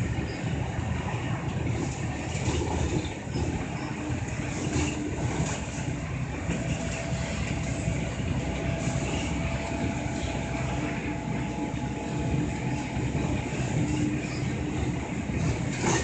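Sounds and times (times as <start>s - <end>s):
bus engine and road noise: 0.0s - 16.0s
faint steady whine: 0.0s - 16.0s.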